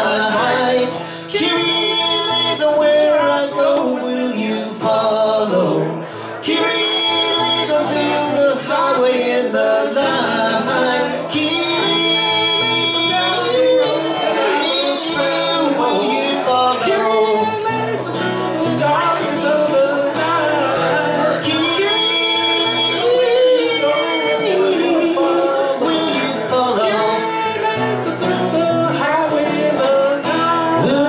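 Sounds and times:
acoustic guitar strumming: 0.0 - 31.0
man singing into a microphone: 0.0 - 31.0.

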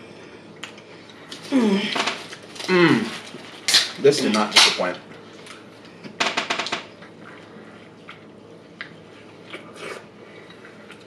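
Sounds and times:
soft chewing and mouth sounds: 0.2 - 1.5, 7.0 - 11.0.

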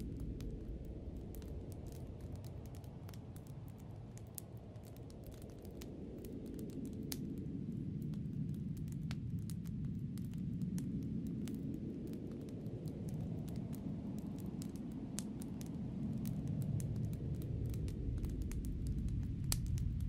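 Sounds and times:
light ticks and clicks: 8.0 - 20.0.

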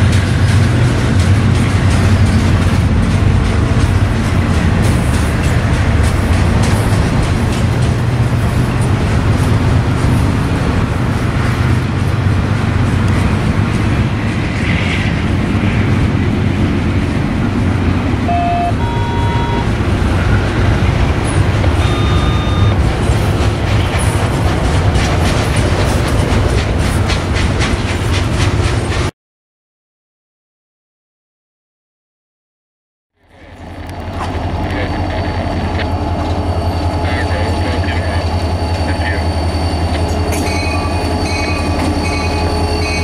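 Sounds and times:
freight train rumbling: 0.0 - 29.1, 33.2 - 43.0
wheels clicking over track: 19.4 - 29.1.

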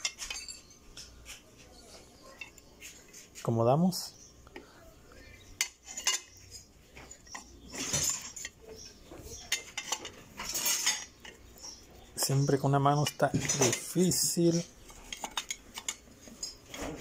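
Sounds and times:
metal scraping on metal: 5.6 - 17.0.

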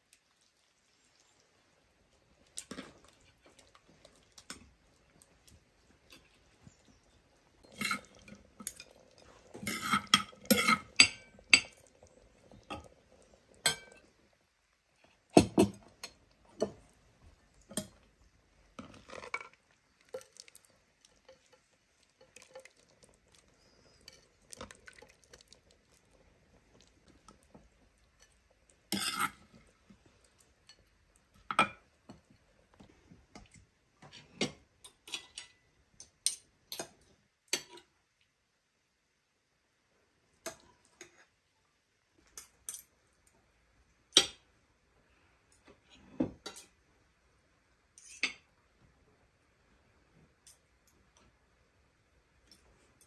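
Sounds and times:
metal utensils clinking on dishes: 7.6 - 11.9, 13.6 - 14.0, 28.2 - 29.6, 34.2 - 37.0, 46.4 - 46.8.

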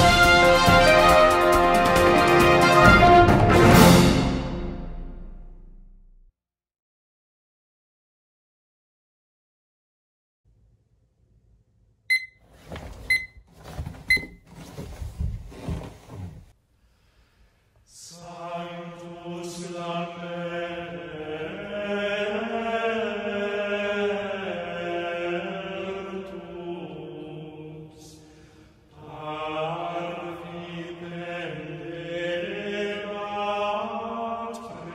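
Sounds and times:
digital alarm clock beeps: 12.1 - 12.4, 13.1 - 13.4
rustling: 12.4 - 16.5
slow sung chant: 17.8 - 34.9.

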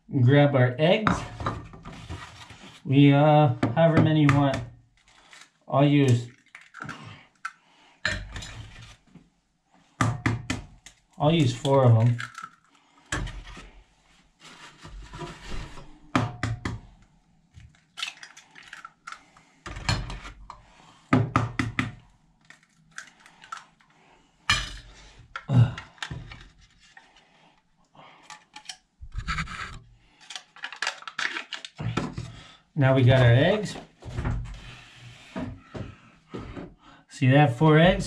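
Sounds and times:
eggshells cracking: 6.3 - 7.6, 10.9 - 12.8, 17.7 - 19.5, 22.4 - 23.8.

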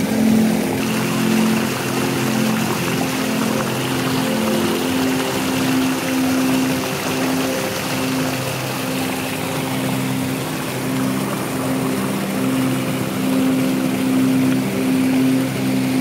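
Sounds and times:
slow melody of held notes: 0.0 - 16.0
water rushing over boulders: 0.0 - 16.0.

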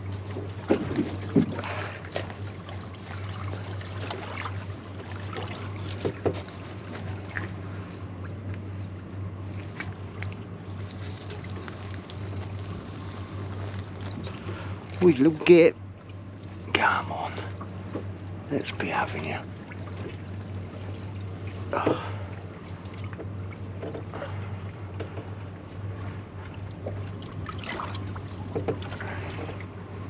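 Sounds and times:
steady low hum: 0.0 - 30.0
water noise: 0.0 - 30.0.

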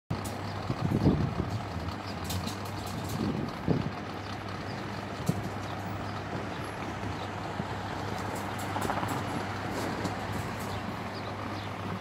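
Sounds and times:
distant traffic rumble: 0.1 - 12.0.

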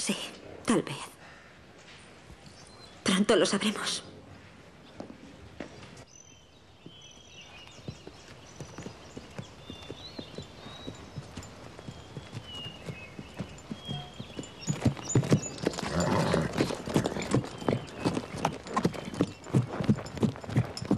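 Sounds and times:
horse hooves on dirt: 4.9 - 20.9
faint bird chirps: 6.1 - 16.1.

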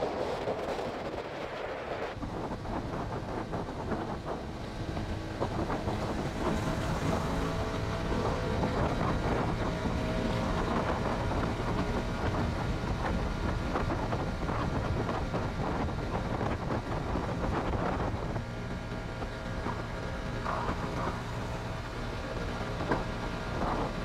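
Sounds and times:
wind noise on microphone: 0.0 - 24.0
motorcycle engine running: 2.2 - 24.0.

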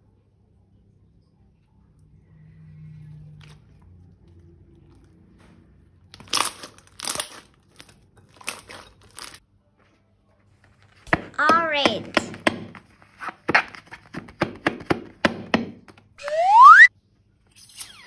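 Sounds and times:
faint low hum: 0.0 - 6.2
slime crunching when squeezed: 6.1 - 9.4.

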